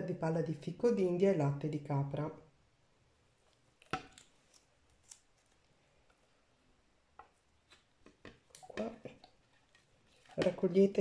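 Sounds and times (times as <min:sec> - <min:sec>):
plastic jug clicks and taps: 0:08.0 - 0:09.3.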